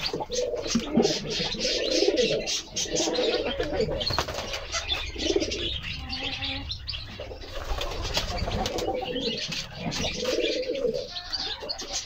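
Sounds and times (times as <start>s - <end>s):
pigeons cooing: 0.0s - 12.0s
wing flutters: 4.0s - 5.6s, 7.2s - 10.6s.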